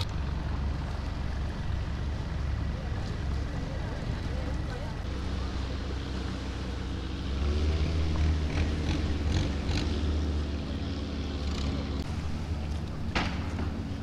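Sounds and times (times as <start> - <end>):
boat engine droning: 0.0 - 14.0
water splashes: 0.0 - 14.0.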